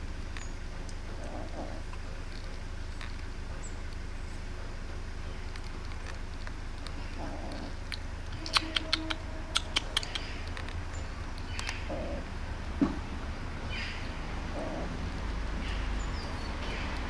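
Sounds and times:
kitten chewing wet food: 0:00.0 - 0:13.6.

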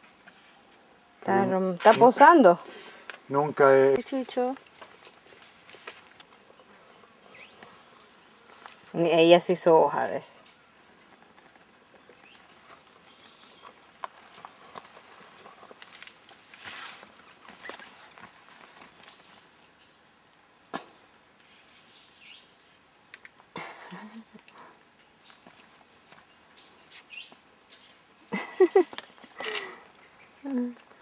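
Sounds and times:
high-pitched insect chirring: 0:00.1 - 0:06.5.

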